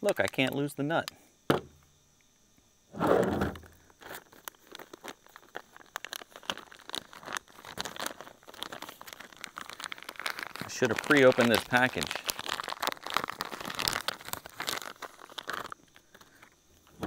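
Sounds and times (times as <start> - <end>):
chainsaw set down on table: 1.5 - 1.8
plastic package tearing and crinkling: 4.0 - 17.0.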